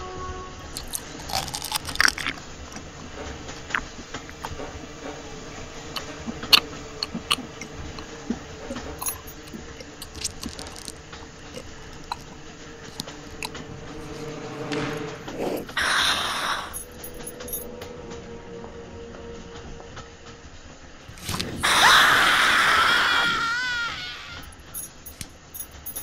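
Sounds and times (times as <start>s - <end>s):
wet biting and chewing: 0.7s - 4.7s, 6.0s - 13.6s, 21.2s - 22.0s.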